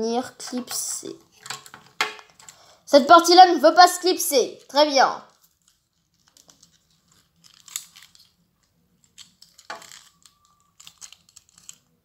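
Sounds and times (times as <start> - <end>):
plastic toy parts clicking: 1.4 - 2.6, 6.2 - 8.4, 9.0 - 11.9.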